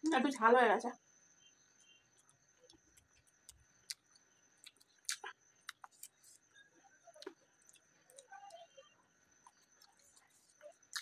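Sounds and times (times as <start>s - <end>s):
faint high whine: 0.0s - 11.0s
mouth clicks and chewing: 2.2s - 6.4s, 9.4s - 11.0s.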